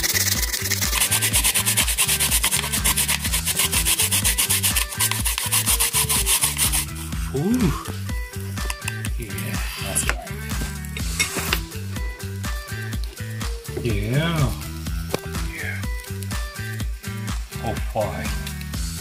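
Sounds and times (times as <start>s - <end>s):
radish grating on plastic grater: 0.0s - 7.2s.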